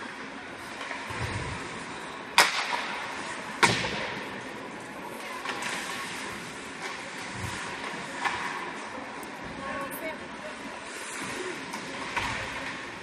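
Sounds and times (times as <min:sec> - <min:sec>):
arena background noise: 0:00.0 - 0:13.0
hockey puck struck cracks: 0:02.4 - 0:02.9.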